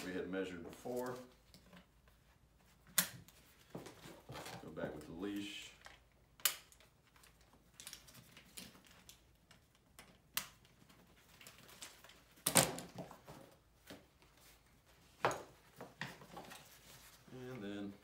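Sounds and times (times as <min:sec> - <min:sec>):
nylon straps rustling and scraping: 0:00.0 - 0:05.2.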